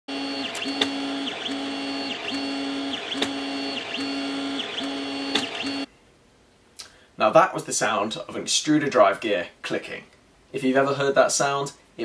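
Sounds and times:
stepper motor whining: 0.1 - 5.9.

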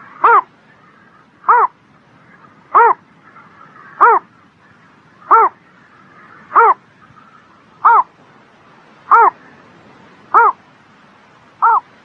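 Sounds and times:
pond animal calling: 0.0 - 8.2, 9.1 - 9.6, 10.3 - 10.6, 11.6 - 12.0.

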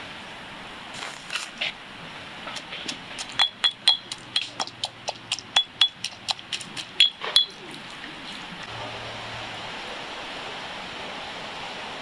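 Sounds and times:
pestle knocking in stone mortar: 2.5 - 7.6.

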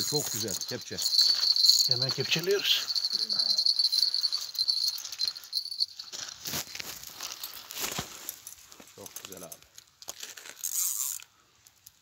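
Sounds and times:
rustling: 0.0 - 11.2
fishing reel drag buzzing: 10.6 - 11.2.

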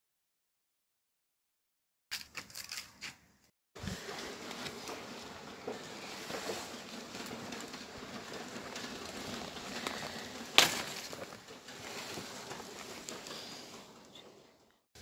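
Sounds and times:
leaves rustling: 3.8 - 14.5
stalk snapping: 9.8 - 11.4.

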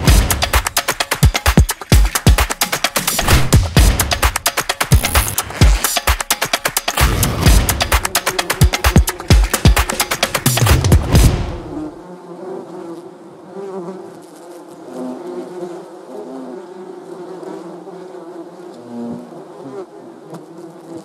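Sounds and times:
swarm of bees buzzing: 4.8 - 21.0.

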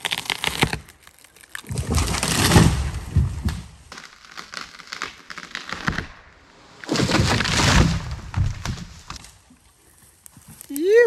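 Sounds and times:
wood cracking and snapping: 0.0 - 9.4
tree crashing down: 0.1 - 6.2, 6.8 - 9.3.

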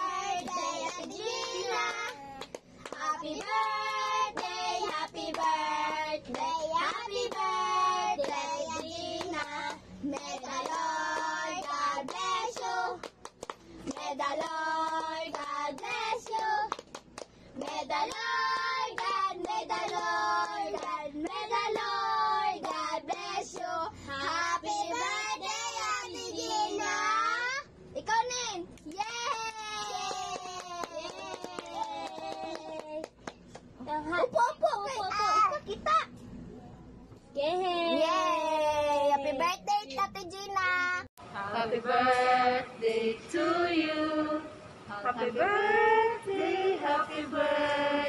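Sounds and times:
hand clapping: 0.4 - 6.4, 9.2 - 21.9, 28.8 - 33.7.

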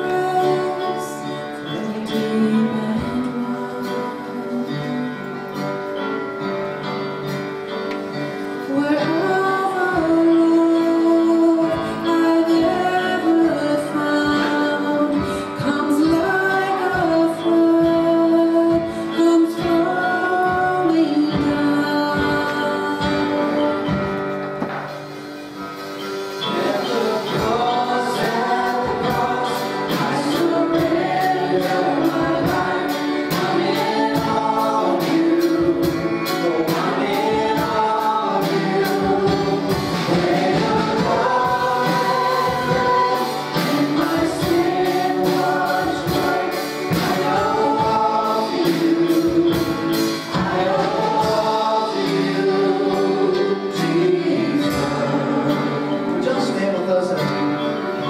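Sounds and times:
group singing gospel song: 0.0 - 5.9, 8.6 - 58.0
instrumental accompaniment with beat: 0.0 - 58.0.

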